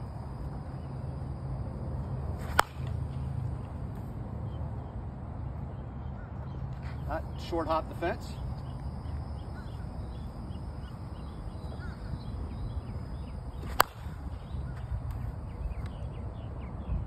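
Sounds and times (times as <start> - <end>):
bat striking softball: 2.4 - 3.2, 13.6 - 14.3.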